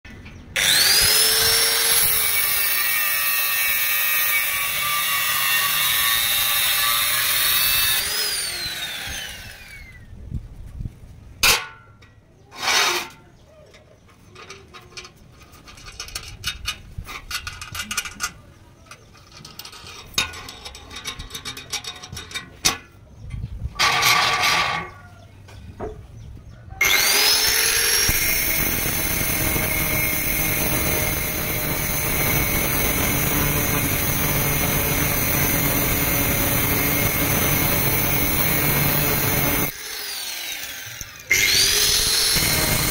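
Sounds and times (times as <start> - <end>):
angle grinder cutting steel: 0.6 - 10.0, 12.6 - 13.2, 23.8 - 25.0, 26.8 - 42.9.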